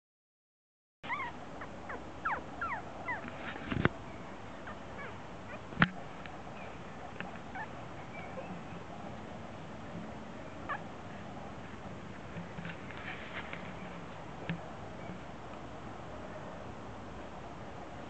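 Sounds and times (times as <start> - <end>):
puppies yipping and whimpering: 1.0 - 3.4, 4.6 - 5.7, 7.4 - 8.8.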